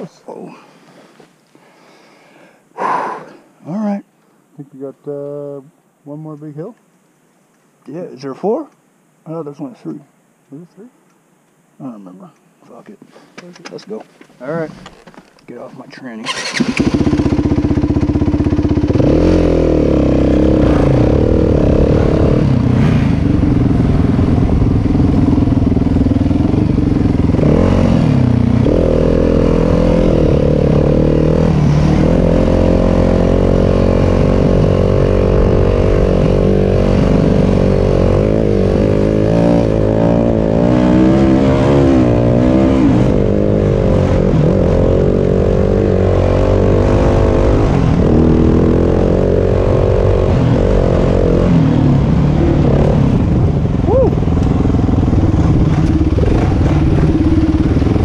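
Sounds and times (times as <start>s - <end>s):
dirt bike engine revving: 16.2s - 58.0s.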